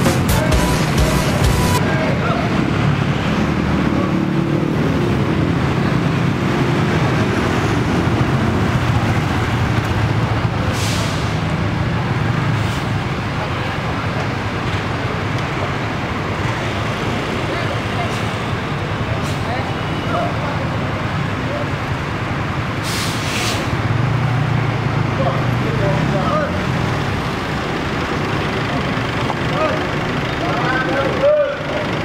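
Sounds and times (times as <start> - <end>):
bus diesel engine running: 0.0 - 32.0.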